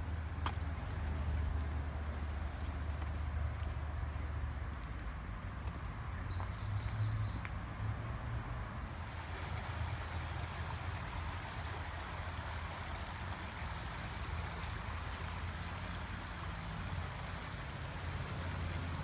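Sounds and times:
creek water rushing: 8.8 - 19.0.

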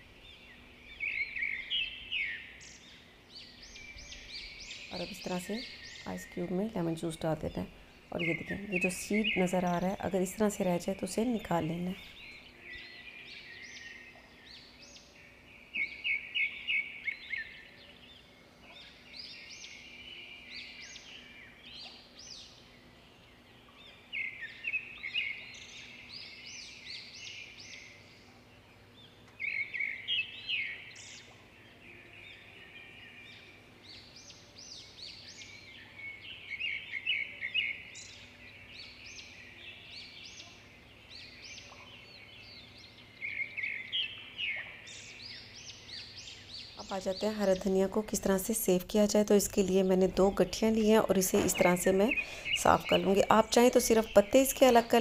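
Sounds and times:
faint steady hum: 0.0 - 55.0
small birds chirping: 0.0 - 55.0.

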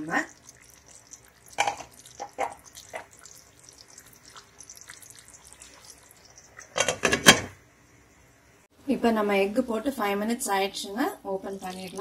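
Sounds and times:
gravy simmering with bubbling pops: 0.0 - 7.6.

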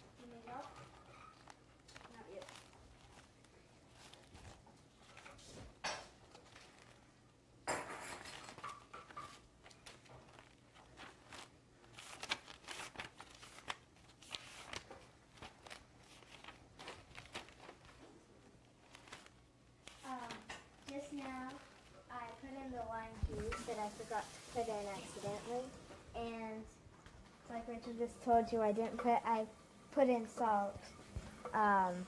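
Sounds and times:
utensils and dishes clinking: 7.6 - 9.4.

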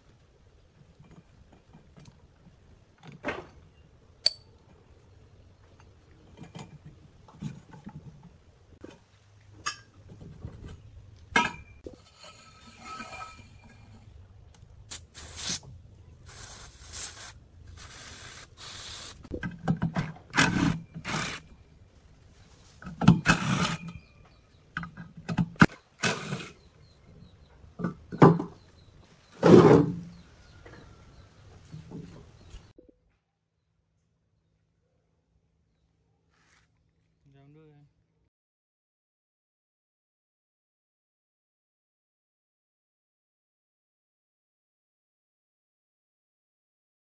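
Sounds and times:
aerosol can spraying: 16.3 - 19.3.

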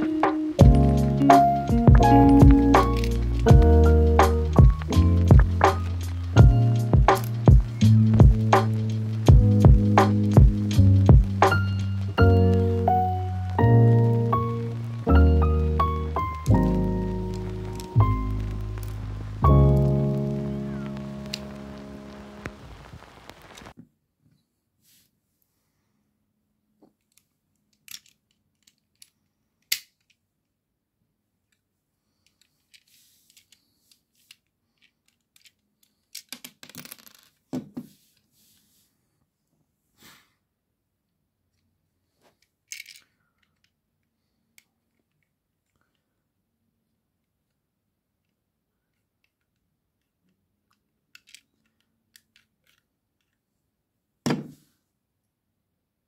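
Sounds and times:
plastic bricks clicking and clattering: 27.1 - 30.2, 34.2 - 37.5, 42.7 - 43.7, 50.7 - 53.4
soft rustling: 32.1 - 35.6, 37.2 - 40.3
thump on wooden table: 54.2 - 54.6.

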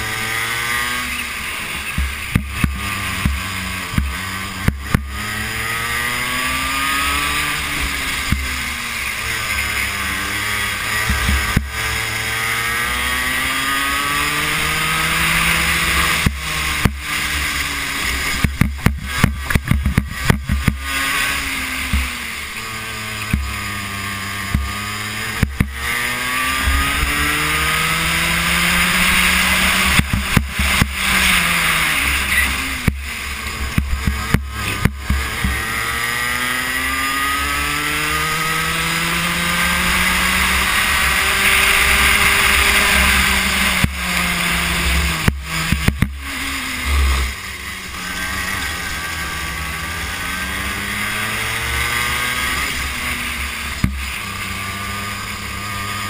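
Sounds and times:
kart engine revving: 0.0 - 56.0
sharp knocks and rattles: 18.4 - 20.8.

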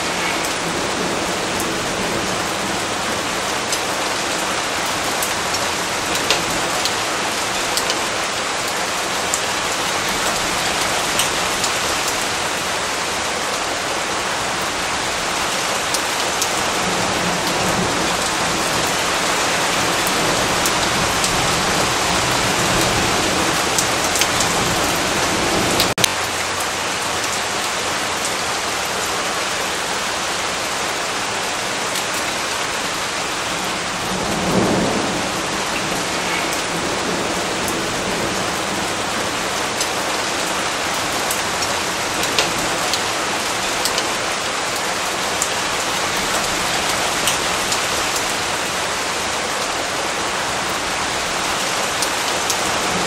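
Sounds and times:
heavy rain: 0.0 - 53.0
raindrop ticks: 5.2 - 7.0, 7.6 - 9.5, 23.8 - 24.5, 42.2 - 43.0, 43.8 - 44.1
thunder rumbling: 33.0 - 42.9.

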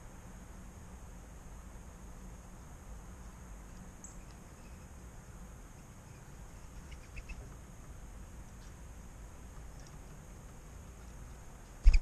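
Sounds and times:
low rumble and hiss: 0.0 - 12.0
birds chirping: 6.0 - 8.0.

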